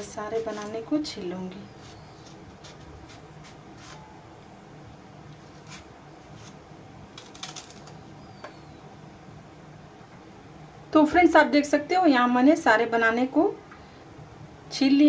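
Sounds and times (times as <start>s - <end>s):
knife scraping banana peel: 0.0s - 0.8s, 1.7s - 4.1s, 5.3s - 8.0s
faint steady hum: 0.0s - 15.0s.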